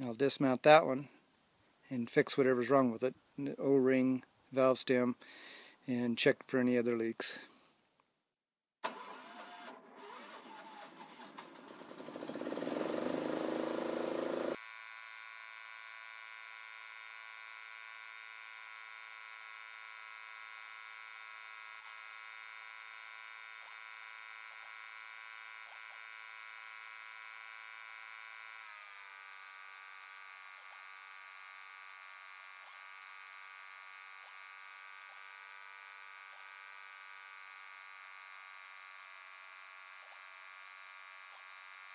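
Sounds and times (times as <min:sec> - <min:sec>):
engine buzzing hum: 0:08.8 - 0:14.6.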